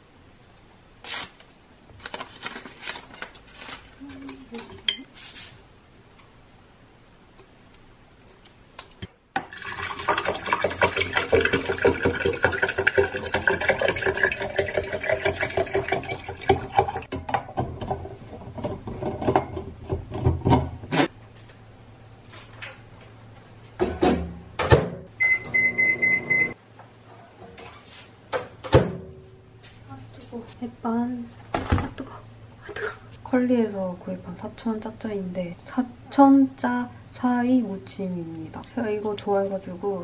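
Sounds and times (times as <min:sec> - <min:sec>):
water pouring into a tumbler: 0:09.5 - 0:17.1.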